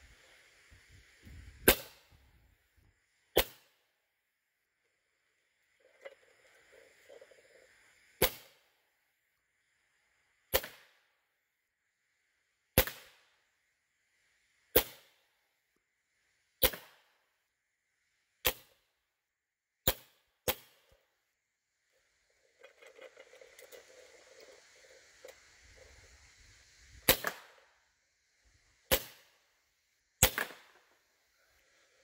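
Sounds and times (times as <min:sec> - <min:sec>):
air rifle shots: 0:01.6 - 0:02.1, 0:10.5 - 0:11.0, 0:12.8 - 0:13.2, 0:16.6 - 0:17.0, 0:27.0 - 0:27.6, 0:28.9 - 0:29.4, 0:30.2 - 0:30.8.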